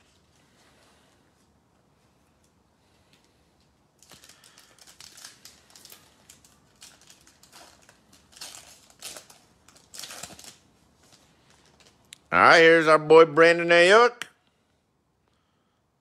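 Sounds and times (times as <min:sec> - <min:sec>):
foil wrapper crinkling and tearing: 0:04.0 - 0:12.1.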